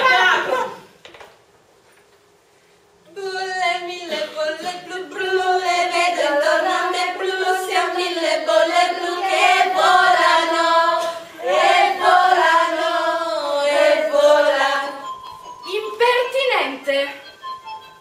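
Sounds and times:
women singing together: 3.1 - 15.1.

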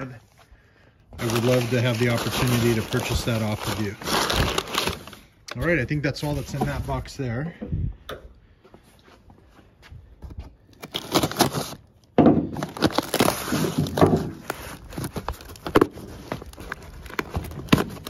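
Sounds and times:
cardboard and paper rustling: 1.2 - 5.4, 6.1 - 7.2, 10.7 - 11.9, 12.5 - 18.0.

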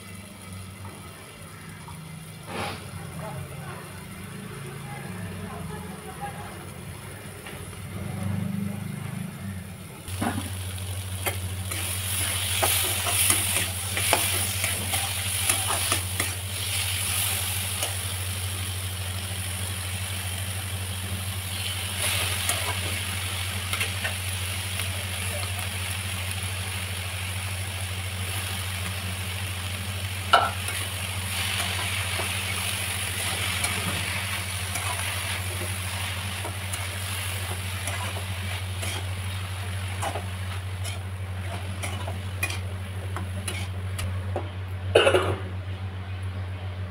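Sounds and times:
vegetables sizzling in a pan: 0.0 - 44.4
spatula scraping a pan: 33.2 - 39.2, 39.9 - 42.7, 43.4 - 43.8.

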